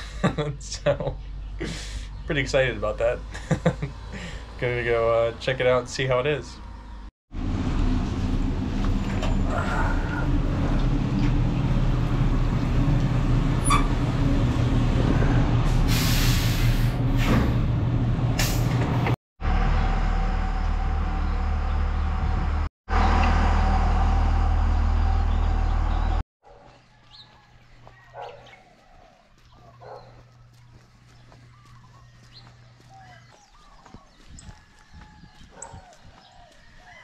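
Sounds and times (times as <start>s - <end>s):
faint outdoor sounds: 0.0s - 7.1s, 8.8s - 12.8s, 25.0s - 37.0s
bus engine rumbling: 0.0s - 26.2s
air brake hiss: 15.7s - 17.6s, 18.4s - 18.8s.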